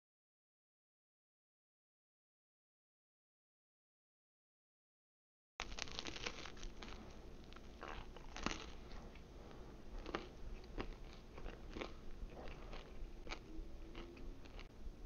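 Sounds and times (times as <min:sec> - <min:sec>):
person chewing crunchy pizza: 0:05.6 - 0:14.7.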